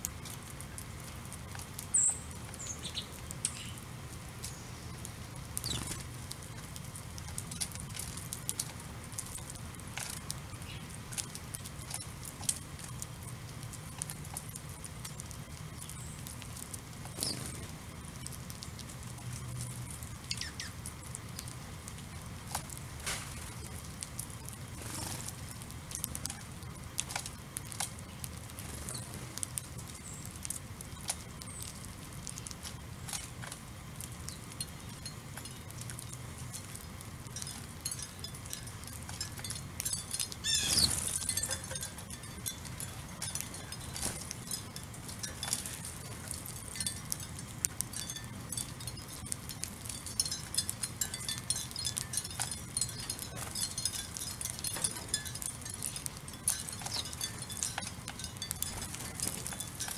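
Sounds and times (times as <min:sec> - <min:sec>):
sparrows pecking at birdseed: 0:00.0 - 0:59.9
sparrows chirping: 0:01.8 - 0:06.6, 0:10.5 - 0:12.1, 0:15.8 - 0:16.4, 0:17.0 - 0:18.8, 0:19.7 - 0:21.6, 0:28.0 - 0:33.4, 0:37.4 - 0:46.2, 0:50.2 - 0:59.8.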